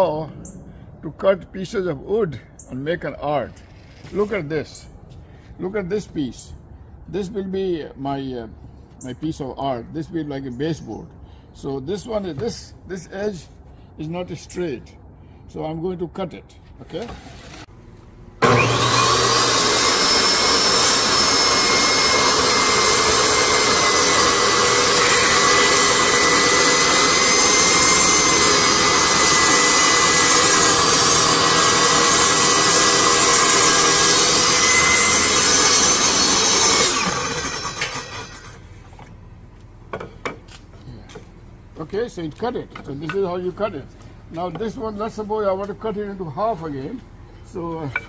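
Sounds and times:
table saw cutting wood: 18.4 - 38.7.

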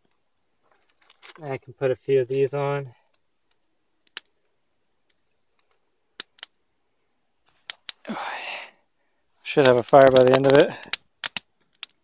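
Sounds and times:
short breathy rush: 8.0 - 8.8
kindling sticks clacking: 9.6 - 12.0.

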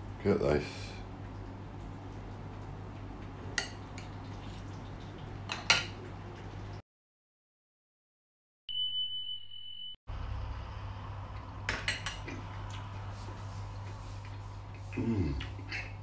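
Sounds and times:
low steady hum: 0.0 - 6.8
high electronic beep: 8.7 - 10.0.

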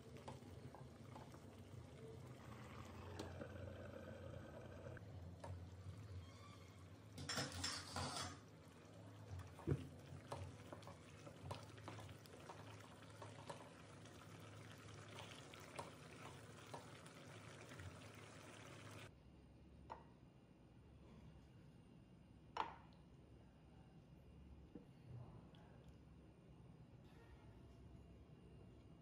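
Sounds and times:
wooden spatula stirring thick gravy: 8.4 - 18.0.

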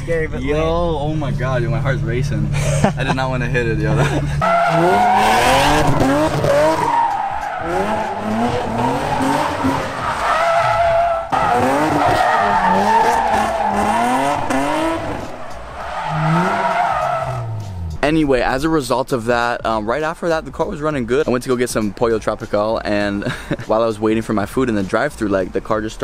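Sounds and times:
car engine revving: 0.0 - 18.7
tyres squealing: 4.4 - 17.9.

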